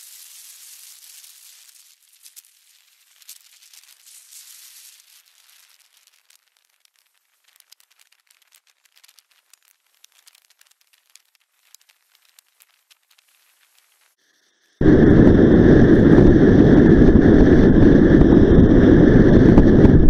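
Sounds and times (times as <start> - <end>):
faint crackling clicks: 0.0 - 14.8
light hiss: 0.0 - 14.8.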